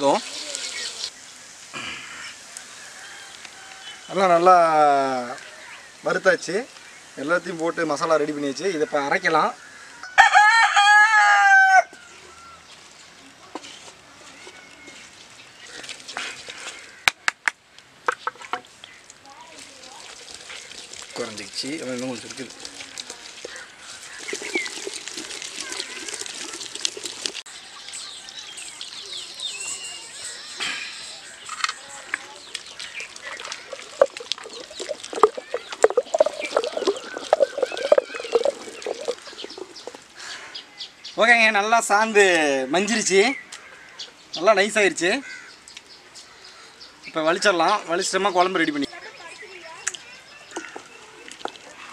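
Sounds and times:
rooster crowing: 0:02.7 - 0:04.1, 0:10.0 - 0:12.6
birds chirping faintly: 0:27.4 - 0:51.9
wooden spoon scraping pot: 0:33.2 - 0:40.0.

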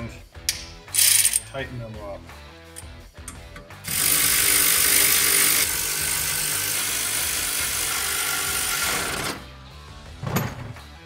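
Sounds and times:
power ratchet whirring: 0:03.8 - 0:09.4.

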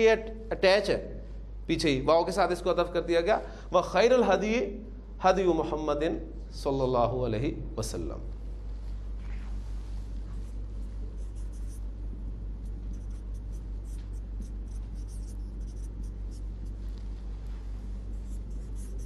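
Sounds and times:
steady low hum: 0:00.0 - 0:19.0
marker scratching on whiteboard: 0:11.2 - 0:12.0, 0:12.6 - 0:16.8, 0:18.1 - 0:19.0.

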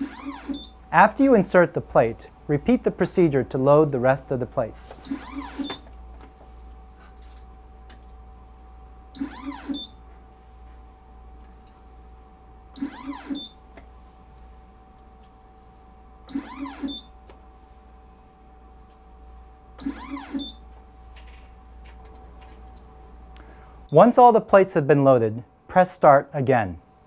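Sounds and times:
short motor whirs: 0:00.0 - 0:00.7, 0:05.0 - 0:05.8, 0:09.2 - 0:10.0, 0:12.8 - 0:13.6, 0:16.3 - 0:17.1, 0:19.8 - 0:20.6
steady instrument hum: 0:00.0 - 0:27.0.

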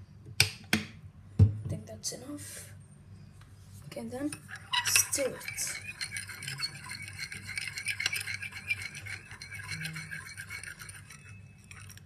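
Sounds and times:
spoon stirring in glass dish: 0:04.2 - 0:12.0.

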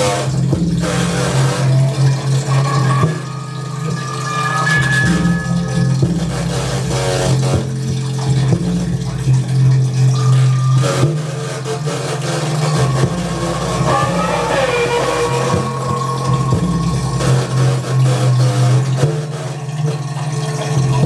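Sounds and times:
stuttering electronic rattles: 0:00.0 - 0:19.7
low droning buzz: 0:00.0 - 0:21.0
wavering electronic tone: 0:01.3 - 0:07.9, 0:10.1 - 0:19.0.

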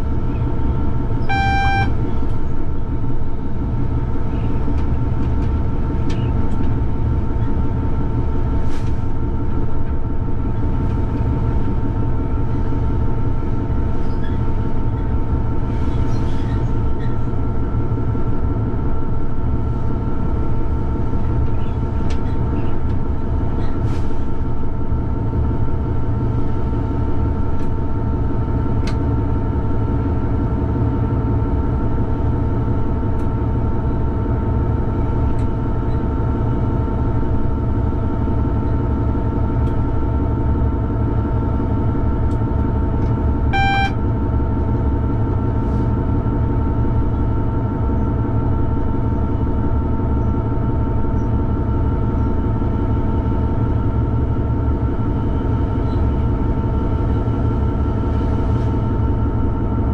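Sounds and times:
locomotive engine rumble: 0:00.0 - 0:59.9
high whine: 0:01.2 - 0:02.2, 0:43.4 - 0:44.1.

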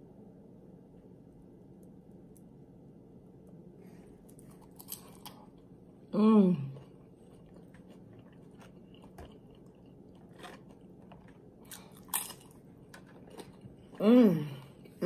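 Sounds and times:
chewing crunchy chips: 0:04.3 - 0:05.7, 0:06.6 - 0:15.0.

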